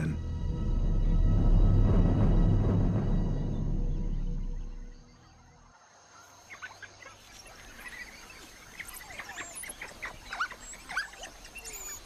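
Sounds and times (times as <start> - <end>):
high-pitched animal chirps and squeaks: 8.8 - 12.0.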